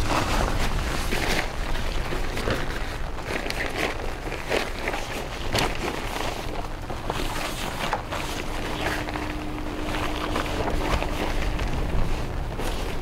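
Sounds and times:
fabric rustling: 0.0 - 13.0
wind buffeting microphone: 5.0 - 13.0.

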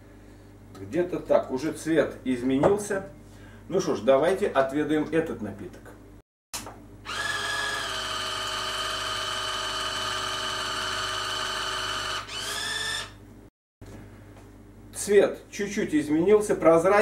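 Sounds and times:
small electric pump whining: 7.0 - 13.2.

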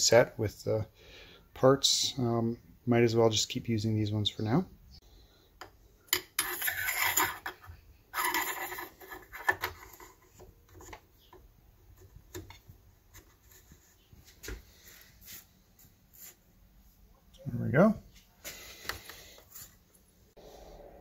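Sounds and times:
hard parts scraping: 6.1 - 11.0.

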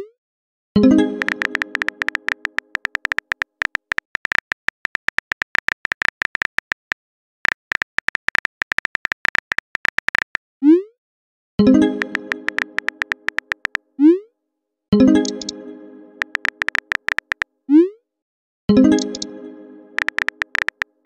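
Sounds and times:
phone keyboard clicks: 1.2 - 10.4, 12.0 - 13.8, 15.2 - 15.6, 16.2 - 17.4, 18.9 - 19.3, 20.0 - 21.0
message alert tone: 11.6 - 13.7.

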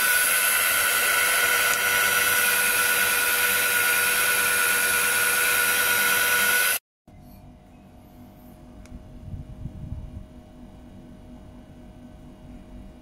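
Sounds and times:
electric polisher whining: 0.0 - 6.8.

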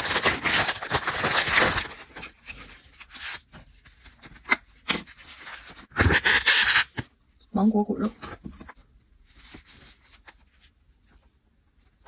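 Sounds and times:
plastic packaging rustling: 0.0 - 4.4.

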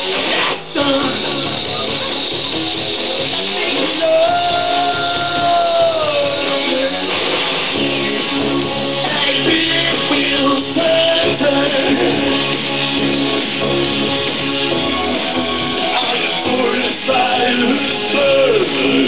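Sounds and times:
live band playing: 0.0 - 19.0
man singing long notes: 3.8 - 7.1, 9.0 - 12.5, 16.0 - 19.0.

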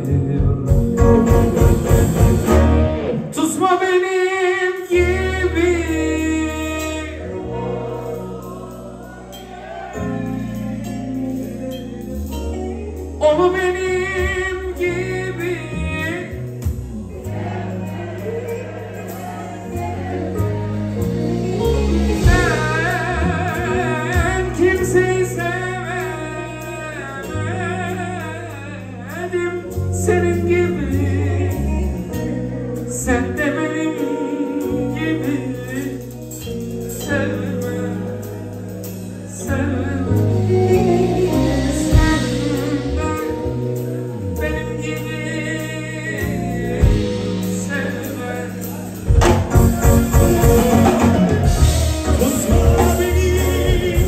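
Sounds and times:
drum kit: 0.0 - 3.7, 4.8 - 28.2, 29.1 - 54.0
electric guitar: 0.0 - 54.0
keyboard: 0.0 - 54.0
man singing ornamented melody: 49.6 - 54.0.

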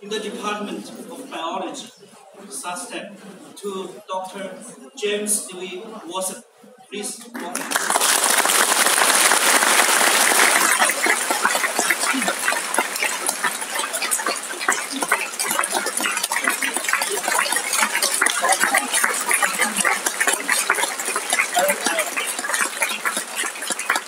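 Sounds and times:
murmured voices: 0.0 - 8.0, 9.1 - 24.0
audience applause: 7.4 - 24.0.

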